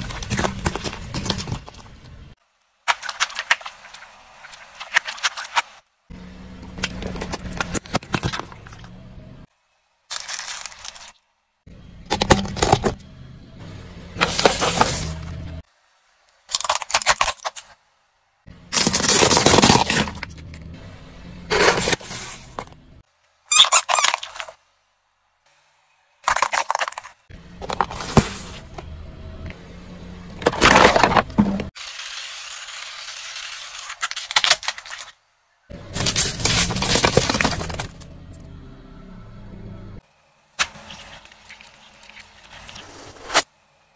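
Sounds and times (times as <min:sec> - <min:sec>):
plastic toys cracking under tyre: 0:16.5 - 0:17.6, 0:18.7 - 0:20.4, 0:26.2 - 0:27.2, 0:33.8 - 0:35.2, 0:35.9 - 0:38.1.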